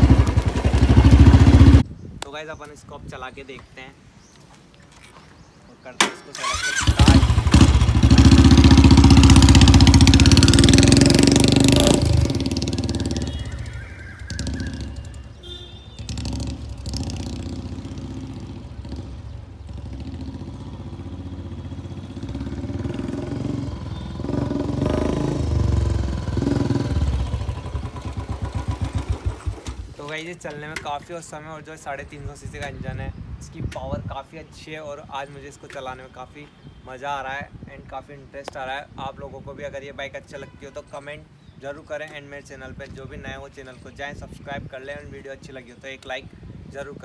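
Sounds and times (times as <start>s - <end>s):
motorcycle engine revving: 0.0s - 1.8s, 6.4s - 29.9s.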